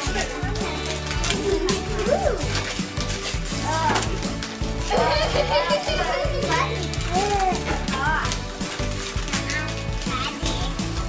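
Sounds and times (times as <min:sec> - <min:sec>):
children calling out: 0:00.0 - 0:02.7, 0:03.5 - 0:08.4
background music: 0:00.0 - 0:11.0.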